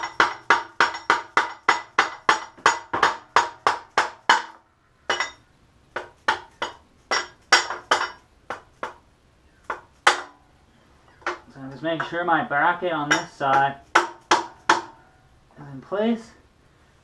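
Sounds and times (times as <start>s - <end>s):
rubber mallet striking dowel: 0.0s - 5.3s, 9.7s - 10.4s, 13.1s - 15.0s.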